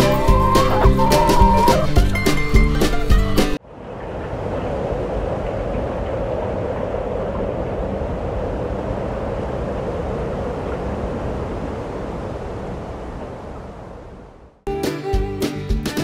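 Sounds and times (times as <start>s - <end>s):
steady rushing noise: 3.6s - 14.6s.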